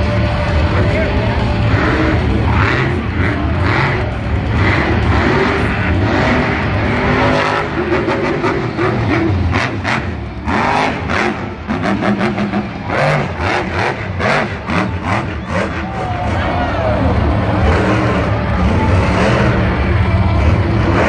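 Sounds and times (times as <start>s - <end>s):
truck engine revving: 0.0s - 21.0s.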